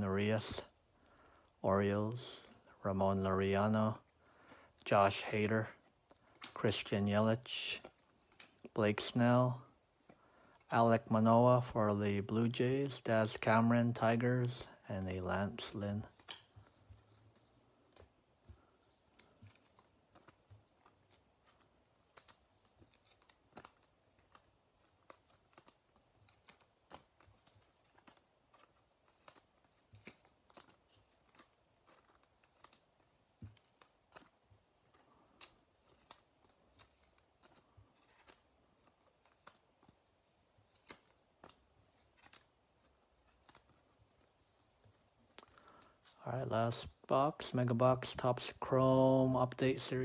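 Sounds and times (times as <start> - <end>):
trading cards clicking and tapping: 15.6 - 40.0.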